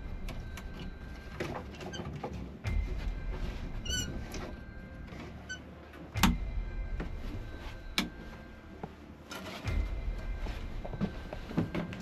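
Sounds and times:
wood squeak: 0.8 - 2.4, 3.8 - 5.8.

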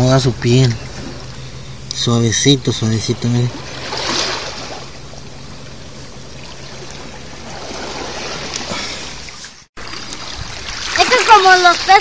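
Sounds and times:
water washing over rocks: 6.4 - 12.0.

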